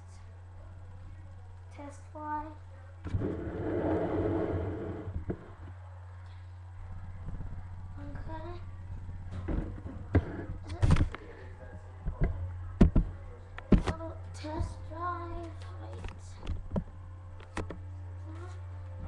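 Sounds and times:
low electrical hum: 0:00.0 - 0:19.0
child singing wordlessly: 0:14.0 - 0:16.4.

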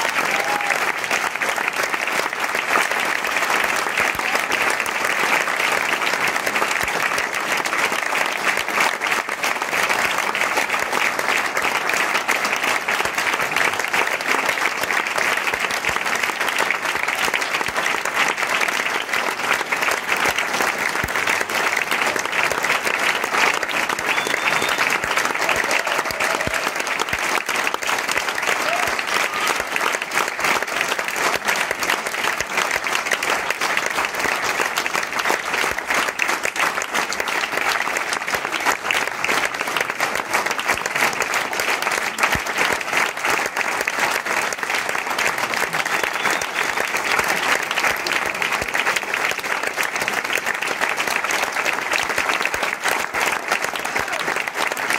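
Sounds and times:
audience applauding: 0:00.0 - 0:54.9.

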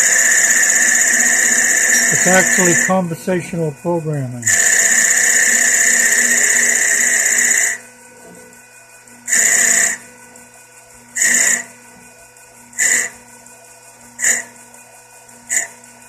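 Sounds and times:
lathe tool cutting workpiece: 0:00.0 - 0:07.8, 0:09.3 - 0:10.0, 0:11.2 - 0:11.7, 0:12.8 - 0:13.1, 0:14.2 - 0:14.5, 0:15.5 - 0:15.8
spindle motor humming: 0:00.0 - 0:16.0.

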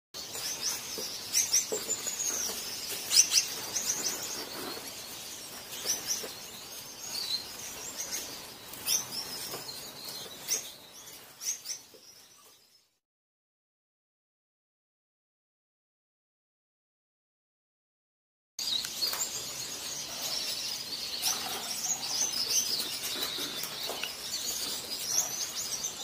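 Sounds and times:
finches chirping and twittering: 0:00.2 - 0:13.0, 0:18.6 - 0:26.0.

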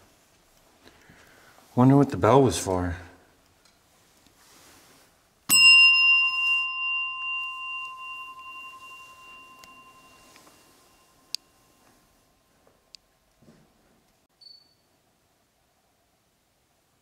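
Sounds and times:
service bell ringing: 0:05.5 - 0:12.0.

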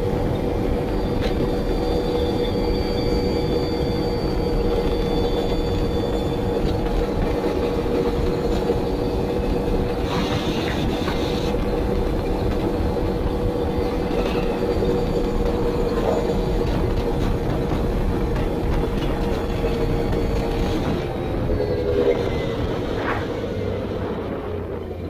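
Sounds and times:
engine running with low rumble: 0:00.0 - 0:25.0.

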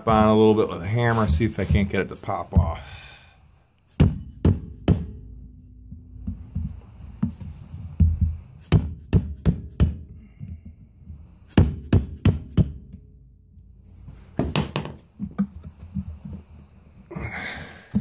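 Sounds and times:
hammer knocking on metal: 0:04.0 - 0:13.1.

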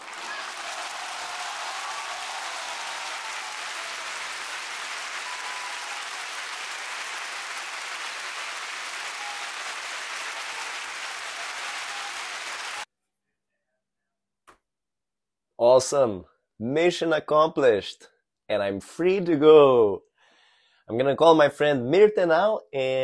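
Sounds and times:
crowd applauding: 0:00.0 - 0:12.9.

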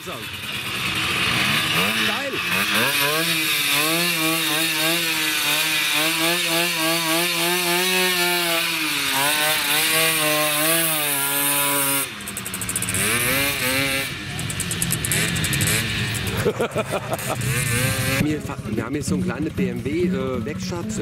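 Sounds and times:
moped engine revving: 0:00.0 - 0:21.0.

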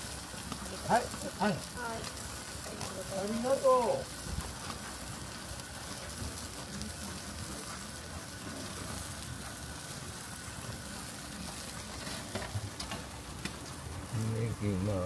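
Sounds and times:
meat skewers sizzling on a grill: 0:00.0 - 0:15.0.

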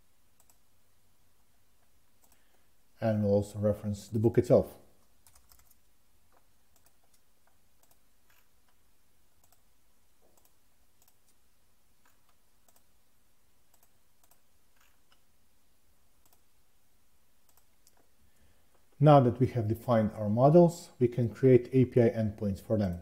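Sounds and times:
mouse and keyboard clicks: 0:05.2 - 0:08.8, 0:09.4 - 0:11.4, 0:13.7 - 0:15.3, 0:16.2 - 0:16.5.

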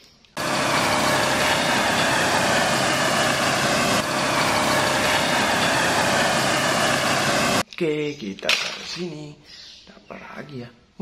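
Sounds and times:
loud engine-like running noise: 0:00.4 - 0:07.6.

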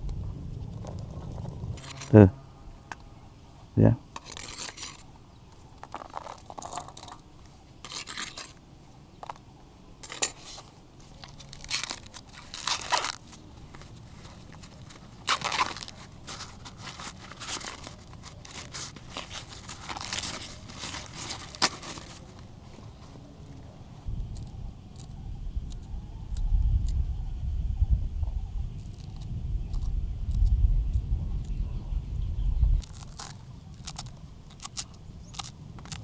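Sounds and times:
food crunching and tearing: 0:10.1 - 0:22.5, 0:28.8 - 0:30.6, 0:32.8 - 0:36.0.

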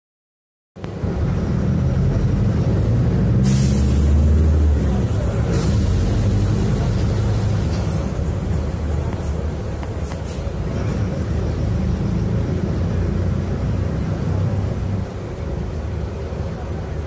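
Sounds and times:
bus engine accelerating: 0:00.8 - 0:17.0
air brake hisses: 0:03.4 - 0:04.2.

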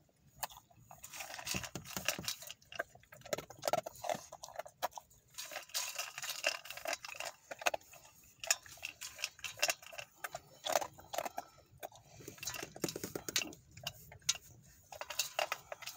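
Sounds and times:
dog eating from metal bowl: 0:00.0 - 0:15.9.

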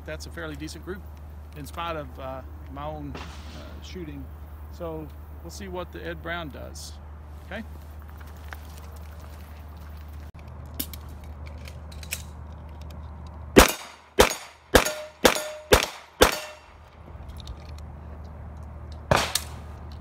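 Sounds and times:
gunshots ringing: 0:03.1 - 0:04.1, 0:13.6 - 0:16.9, 0:19.1 - 0:19.7
cartridges clicking into magazine: 0:10.4 - 0:20.0.

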